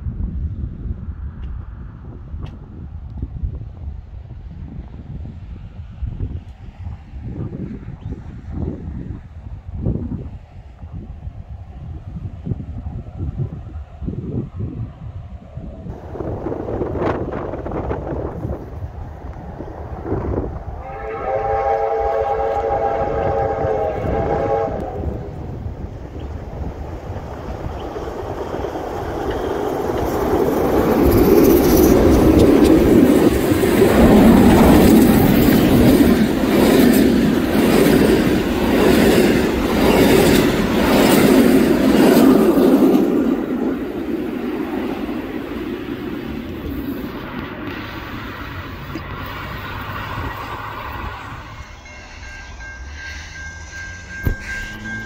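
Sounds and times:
passing train rumble: 0.0 - 55.0
train whistle chord: 20.8 - 25.4, 51.4 - 55.0
train wheels clattering: 27.0 - 46.1, 51.5 - 55.0.

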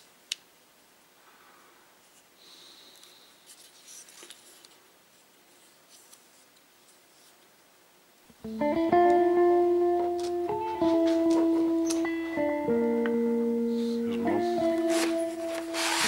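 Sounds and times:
instrumental music: 8.3 - 16.0.

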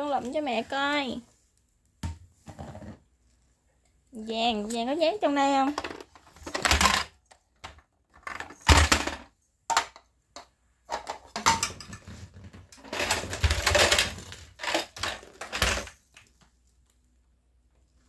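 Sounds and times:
plastic toy clattering: 5.7 - 16.0.

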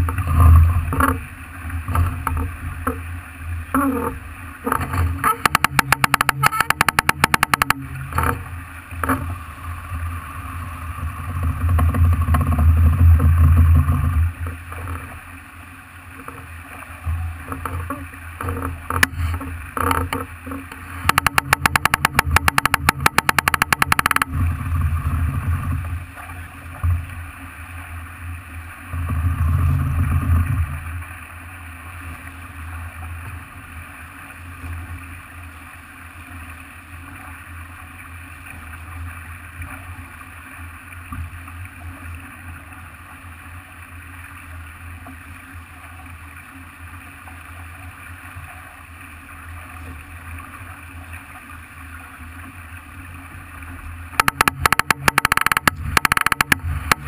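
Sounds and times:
water rushing along hull: 0.0 - 57.0
wind: 0.0 - 57.0
rapid crackling: 5.2 - 8.3, 21.0 - 24.4, 54.2 - 57.0.

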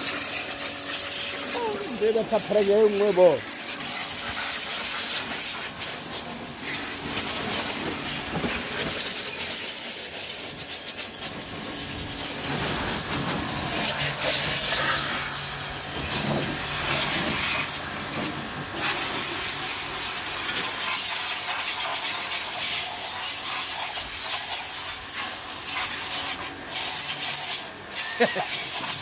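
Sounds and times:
pressure washer jet hissing: 0.0 - 18.2
pump humming: 0.0 - 21.2.

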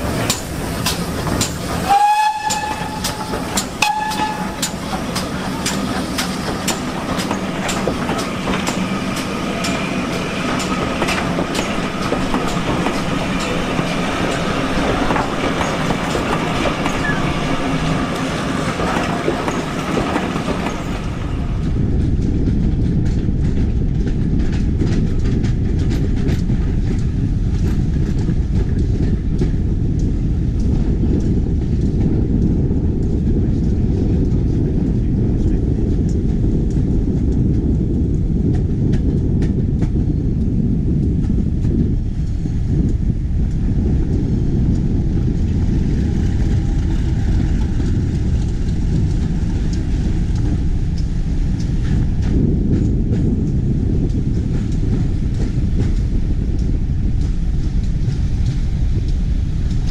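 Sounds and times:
low rumble of moving train: 0.0 - 59.9
wheels clicking over rail joints: 0.0 - 59.9
steam locomotive whistle blasts: 1.8 - 4.7.

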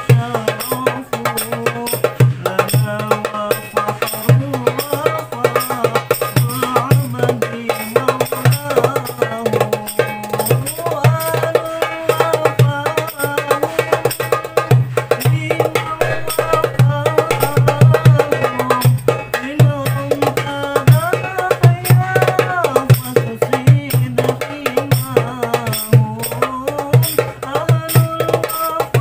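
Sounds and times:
hand drum played fast: 0.0 - 29.0
deep drum dum: 14.5 - 24.2
devotional melody: 15.1 - 22.8.

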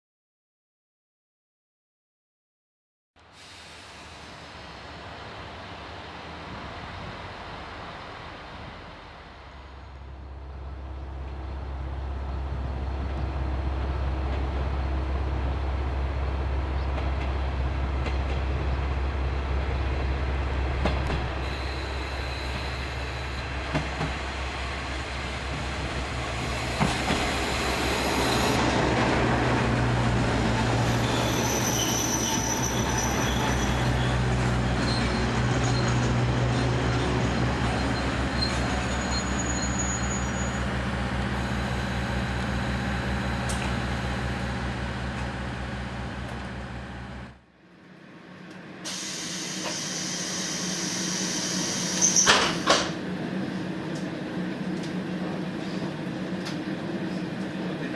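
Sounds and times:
wheels squealing: 30.5 - 42.1
diesel engine drone: 40.4 - 47.6.

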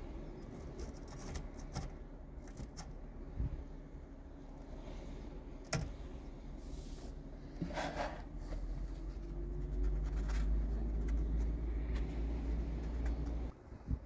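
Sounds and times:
scraping on a plastic plate: 7.6 - 12.1.

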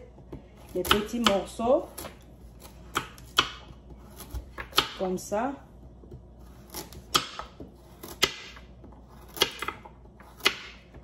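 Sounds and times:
knife chopping on cutting board: 0.1 - 5.2, 6.0 - 11.0.

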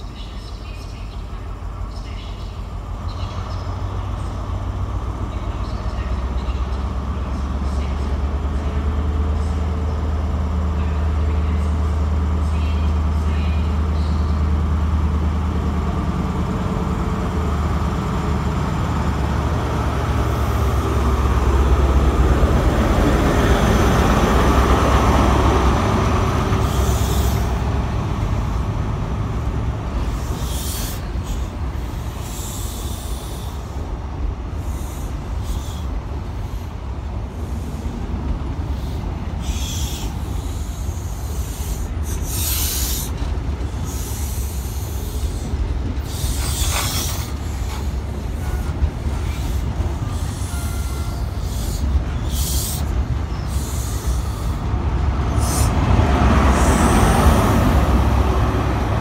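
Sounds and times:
diesel locomotive droning: 0.0 - 59.0
passenger coaches rumbling past: 0.0 - 59.0
train wheel clicks: 38.3 - 54.7.

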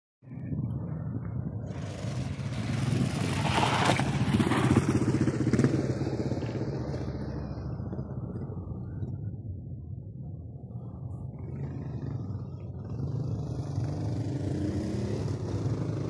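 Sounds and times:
dirt bike engine passing by: 1.7 - 8.6, 11.4 - 16.0.

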